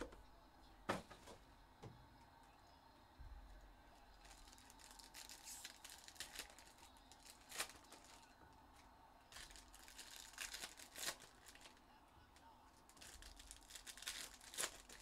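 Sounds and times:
wrappers crinkling and tearing: 4.2s - 8.3s, 9.3s - 11.8s, 12.7s - 15.0s.

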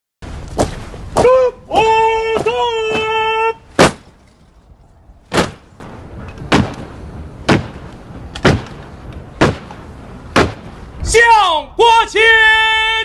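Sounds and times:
boots stamping in unison: 0.5s - 4.2s, 9.4s - 10.7s
shouted drill command: 1.2s - 3.6s, 11.0s - 13.0s.

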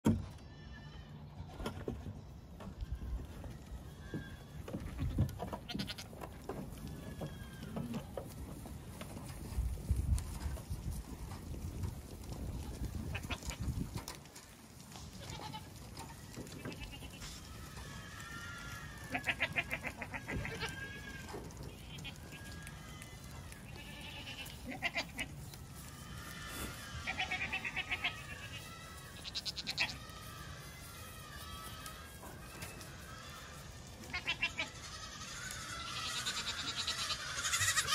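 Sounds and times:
goat kids bleating: 0.3s - 1.5s, 2.6s - 9.9s, 10.9s - 37.9s.

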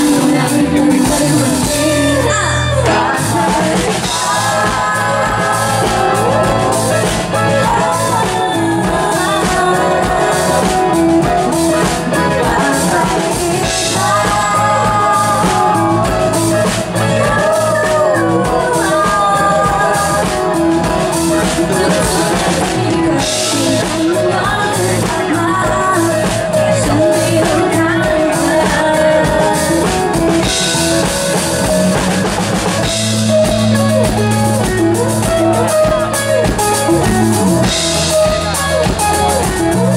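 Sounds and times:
woman singing: 0.0s - 32.0s
keyboard playing: 0.0s - 39.9s
live band music: 0.0s - 39.9s.

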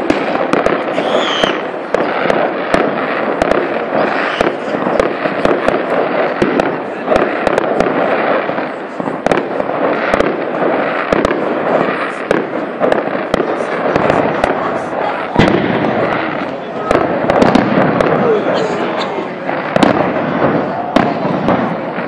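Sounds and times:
falling firework whistle: 0.0s - 1.7s, 4.0s - 4.7s
fireworks bangs: 0.0s - 22.0s
fireworks crackling: 0.0s - 22.0s.

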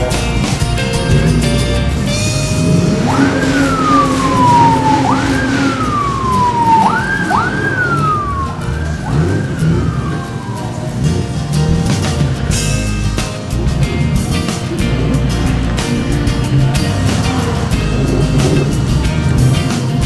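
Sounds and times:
vehicle engines running: 0.0s - 20.0s
siren whooping: 2.2s - 12.0s.

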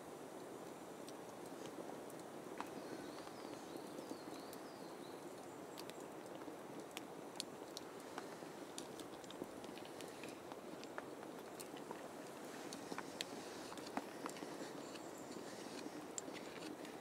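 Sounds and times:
campfire crackling and popping: 0.3s - 17.0s
bird chirping: 2.7s - 6.1s, 13.3s - 16.8s.

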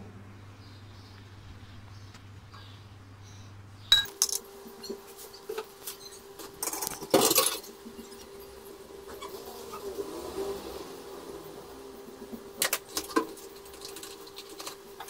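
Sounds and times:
faint steady hum: 0.0s - 15.0s
plates and bowls clinking: 3.9s - 8.3s.

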